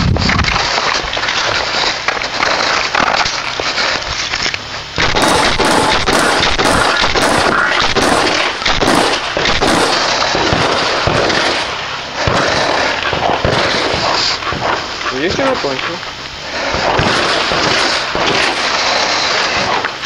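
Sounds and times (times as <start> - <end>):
shotgun shots: 5.0 - 20.0.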